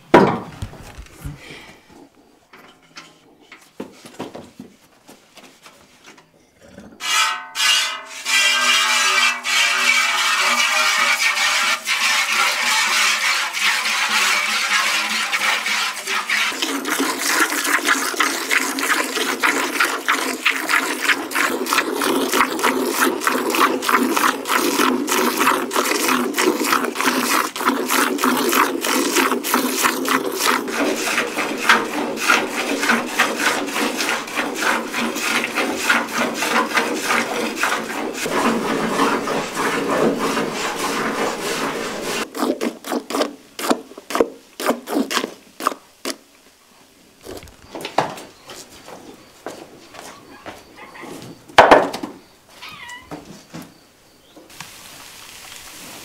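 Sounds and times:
quick scraping strokes: 0:26.9 - 0:45.3.

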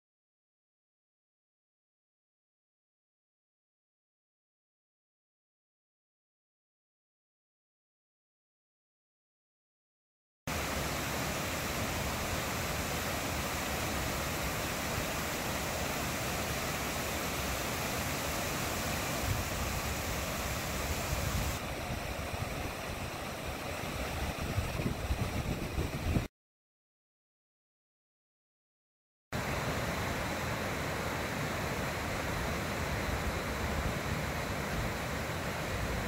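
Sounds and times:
water rushing over rocks: 0:10.5 - 0:26.3, 0:29.4 - 0:36.0.

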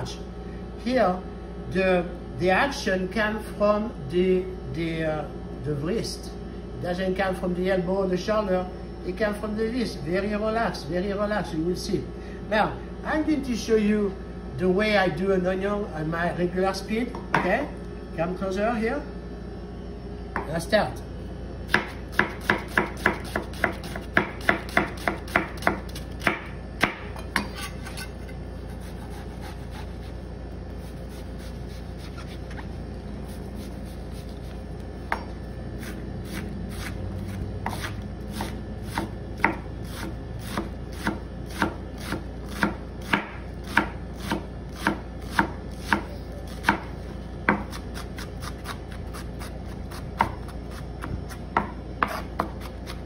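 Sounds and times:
knife chopping on cutting board: 0:21.7 - 0:30.1, 0:30.8 - 0:32.7, 0:33.3 - 0:46.9, 0:47.5 - 0:53.0.

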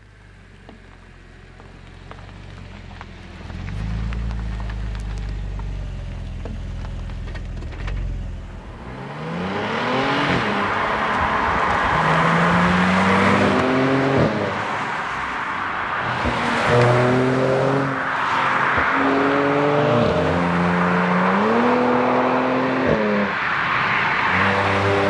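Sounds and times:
engine low rumble: 0:00.0 - 0:18.1
car engine revving: 0:03.1 - 0:25.0.

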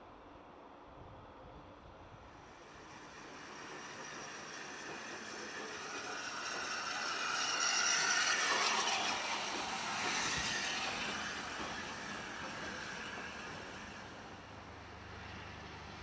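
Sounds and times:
steam locomotive passing: 0:00.0 - 0:16.0
steam hissing: 0:02.5 - 0:14.4.

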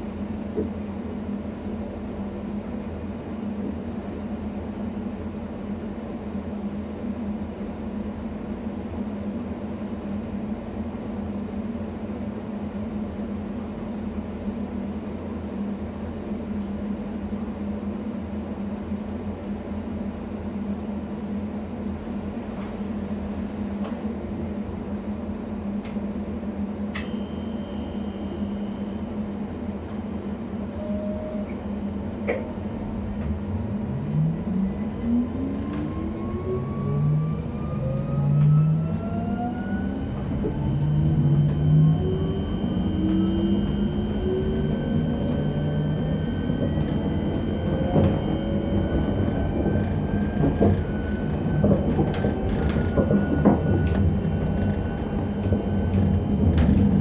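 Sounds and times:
electric train humming: 0:00.0 - 0:57.0
high whine: 0:26.8 - 0:57.0
rising traction motor whine: 0:26.9 - 0:57.0.

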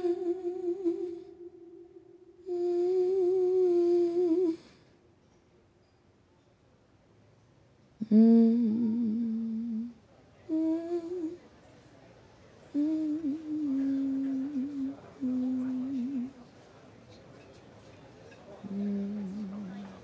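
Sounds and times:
woman humming: 0:00.0 - 0:04.8, 0:08.0 - 0:11.4, 0:12.8 - 0:16.4, 0:18.6 - 0:20.0.

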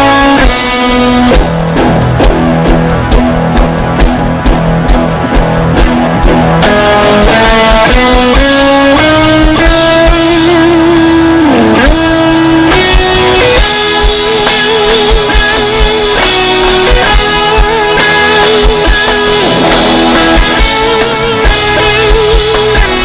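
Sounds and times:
electric guitar lead melody: 0:00.0 - 0:23.0
steady drum beat: 0:00.0 - 0:23.0.

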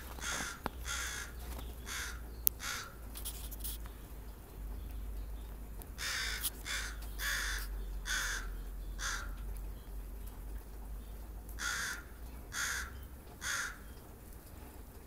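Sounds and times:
crow cawing: 0:00.2 - 0:03.0, 0:06.0 - 0:09.4, 0:11.6 - 0:13.9.

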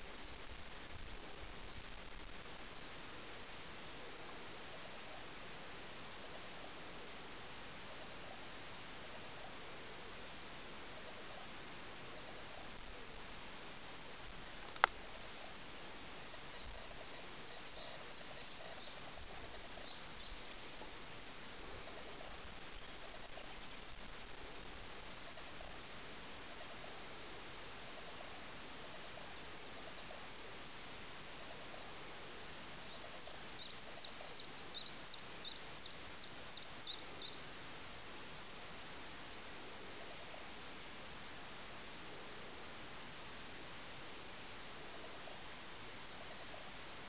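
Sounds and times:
steady hiss: 0:00.0 - 0:47.0
small bird calling: 0:12.1 - 0:27.1, 0:32.8 - 0:37.4.

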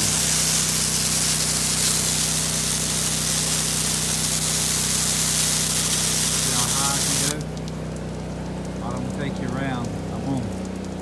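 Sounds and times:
spray hissing onto roof shingles: 0:00.0 - 0:07.7
small gas engine humming: 0:00.0 - 0:11.0.

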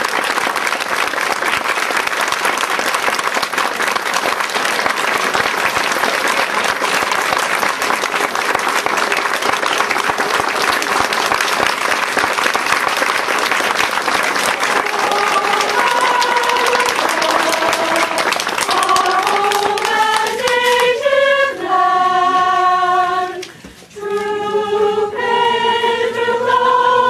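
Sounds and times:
large crowd applauding: 0:00.0 - 0:21.2.

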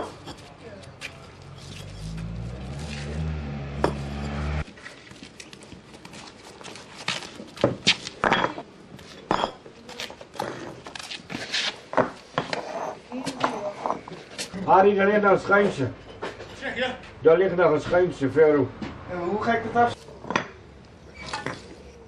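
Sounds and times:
paving bricks clinking together: 0:00.0 - 0:02.2, 0:07.2 - 0:14.5.

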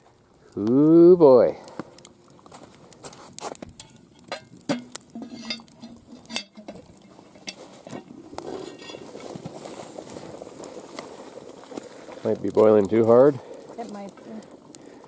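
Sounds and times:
faint sizzle: 0:00.0 - 0:15.0.

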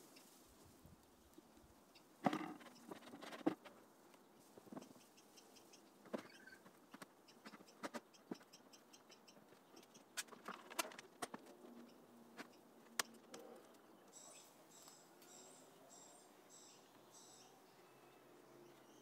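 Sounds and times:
faint high bird chirping: 0:04.7 - 0:10.2, 0:13.6 - 0:19.0.

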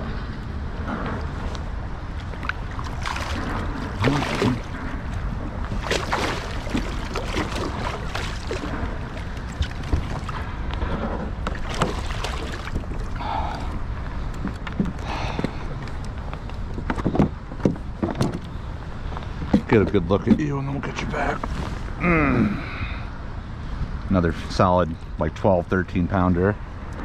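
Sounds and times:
wind rumbling on microphone: 0:00.0 - 0:27.0
water sloshing against kayak: 0:01.1 - 0:20.4.

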